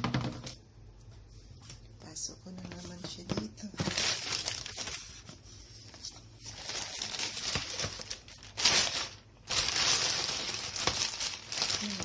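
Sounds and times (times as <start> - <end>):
plastic bag rustling: 2.6 - 12.0.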